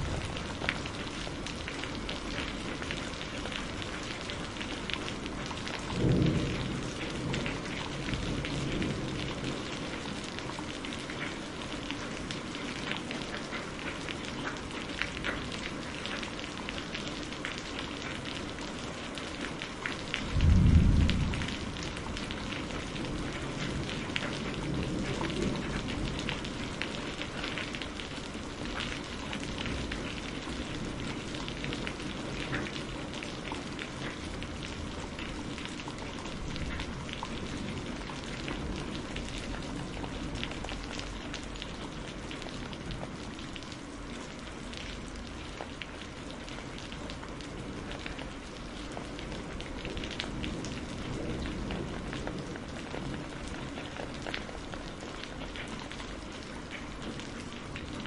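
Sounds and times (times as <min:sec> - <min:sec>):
thunder clap: 0:00.0 - 0:01.1, 0:20.3 - 0:23.7
heavy rain falling: 0:00.0 - 0:58.0.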